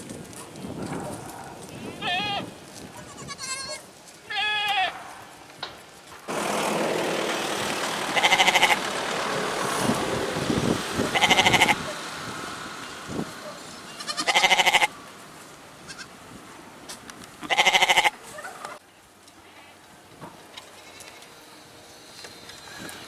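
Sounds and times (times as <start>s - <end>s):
goats bleating: 1.9s - 5.0s, 8.1s - 8.8s, 11.1s - 11.8s, 13.9s - 14.9s, 17.4s - 18.3s.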